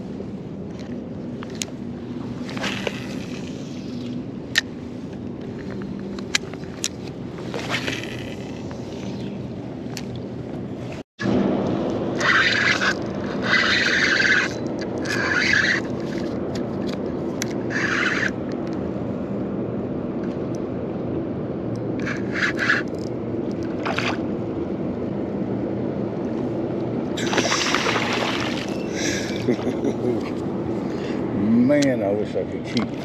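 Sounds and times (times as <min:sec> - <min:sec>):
fish thrashing at water surface: 0:27.2 - 0:28.9
water splashing: 0:27.2 - 0:28.9.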